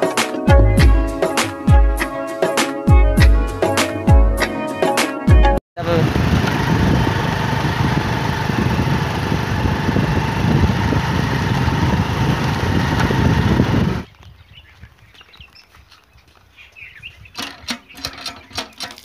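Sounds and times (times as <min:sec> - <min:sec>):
motorcycle engine running: 0:05.8 - 0:14.1
road and wind noise: 0:05.8 - 0:17.7.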